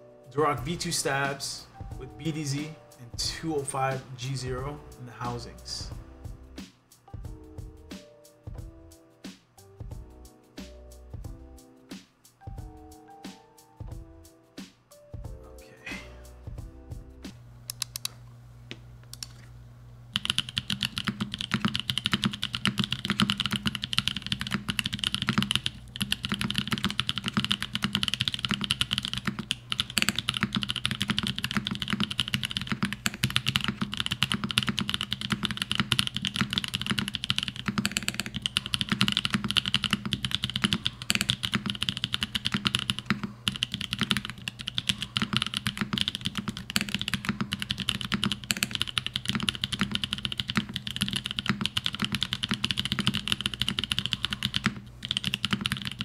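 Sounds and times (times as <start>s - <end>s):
fast mechanical keyboard typing: 20.1s - 56.0s.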